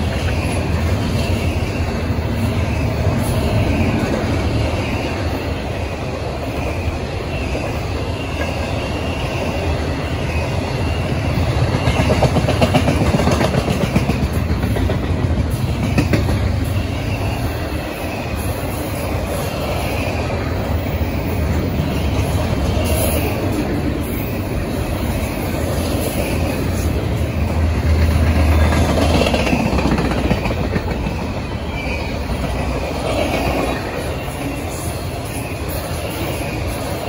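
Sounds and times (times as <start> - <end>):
clickety-clack over rail joints: 0.0 - 37.0
freight train wheels rumbling: 0.0 - 37.0.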